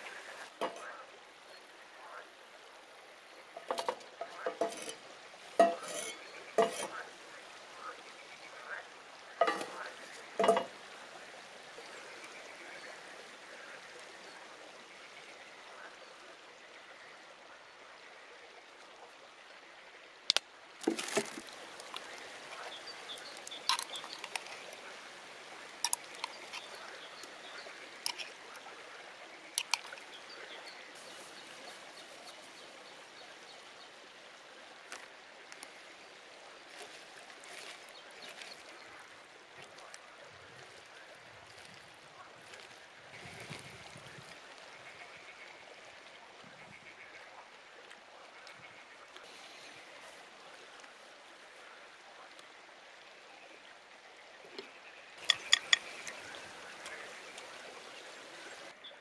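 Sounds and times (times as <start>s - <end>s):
cleaver knocking on skillet: 5.6s - 6.0s
steady hiss: 21.1s - 33.6s.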